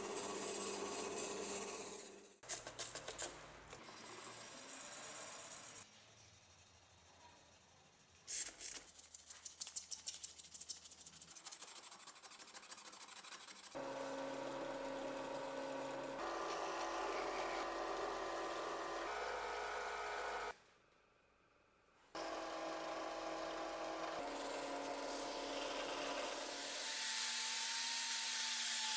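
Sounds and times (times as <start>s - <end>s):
sandpaper rasping on metal: 8.0s - 13.8s
drill press motor hum: 13.8s - 20.6s, 22.2s - 26.8s.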